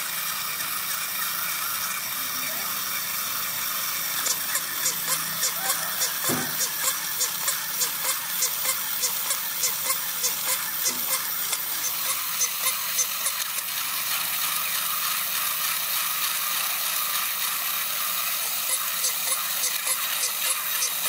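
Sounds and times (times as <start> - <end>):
toy motor whirring: 0.0 - 21.0
toy walking mechanism clicking: 0.0 - 21.0.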